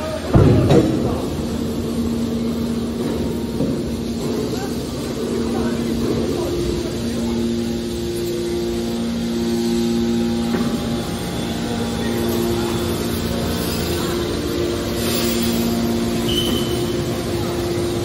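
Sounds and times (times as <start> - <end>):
hydraulic machine hum: 0.0 - 18.0.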